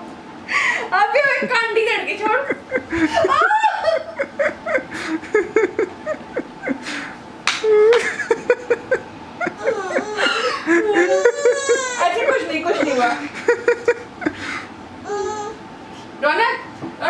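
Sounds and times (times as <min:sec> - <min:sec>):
people chuckling: 0:02.2 - 0:14.7.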